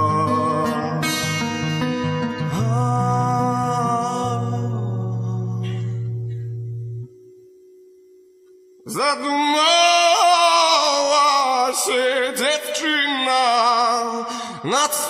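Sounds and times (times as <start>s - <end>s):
high wordless singing with vibrato: 0.0s - 6.2s, 8.8s - 15.0s
slow rock ballad: 0.0s - 7.4s.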